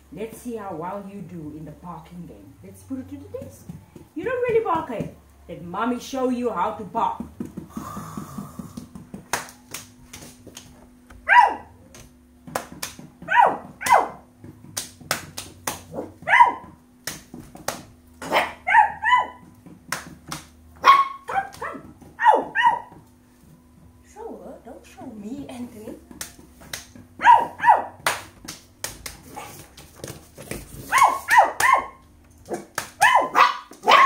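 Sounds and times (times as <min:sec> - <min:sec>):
hands slapping floor: 0:07.2 - 0:11.2, 0:11.9 - 0:16.0, 0:17.0 - 0:18.4, 0:19.5 - 0:20.6, 0:26.1 - 0:27.0, 0:28.0 - 0:33.1.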